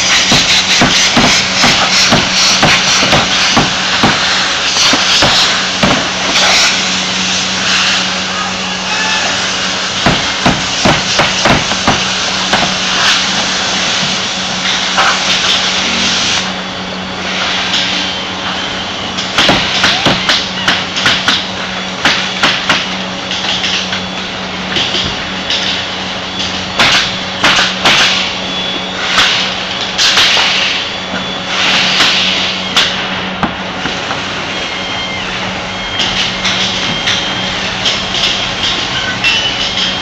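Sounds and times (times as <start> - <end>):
pneumatic nail gun shots: 0.0 - 6.8, 10.0 - 13.2, 19.3 - 21.4, 26.8 - 28.3, 29.1 - 30.8, 31.6 - 33.5
steady low hum: 0.0 - 40.0.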